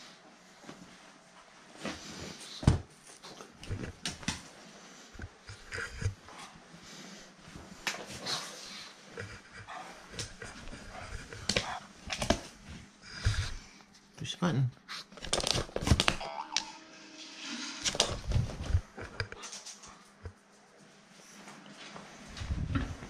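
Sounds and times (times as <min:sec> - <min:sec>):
dog sniffing and breathing: 0:04.4 - 0:14.0.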